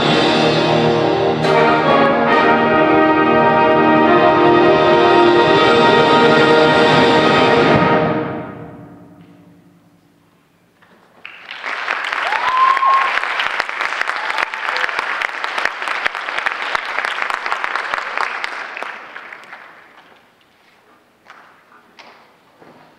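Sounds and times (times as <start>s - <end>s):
audience applause: 11.2s - 20.4s.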